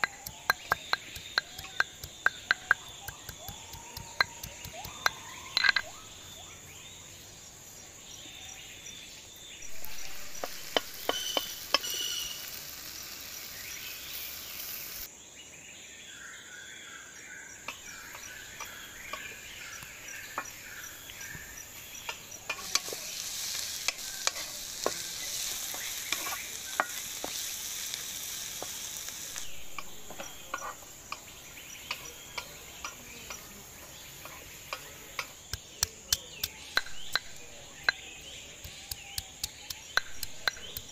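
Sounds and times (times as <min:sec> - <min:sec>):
food sizzling in hot oil: 0:09.6 - 0:15.1, 0:19.8 - 0:33.5, 0:38.7 - 0:40.9
spatula scraping metal pan: 0:22.5 - 0:27.5.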